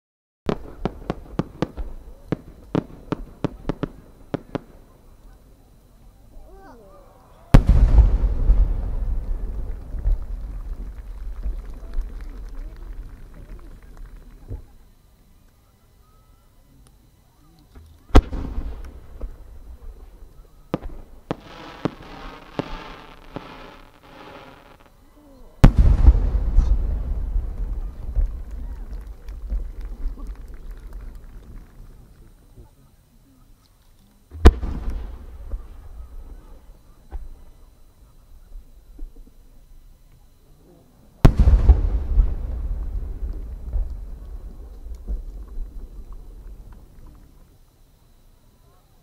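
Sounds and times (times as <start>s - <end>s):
firework sharp bangs: 0.5s - 5.0s, 7.5s - 14.6s, 18.1s - 24.9s, 25.6s - 31.1s, 34.3s - 37.6s, 41.2s - 47.4s
firework launch thump: 25.6s - 30.3s, 34.3s - 35.8s, 37.0s - 37.4s, 41.2s - 47.4s.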